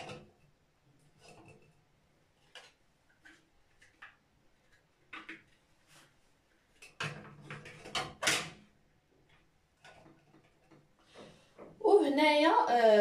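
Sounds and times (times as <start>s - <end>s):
knocks and scrapes on shelf: 6.8s - 8.6s.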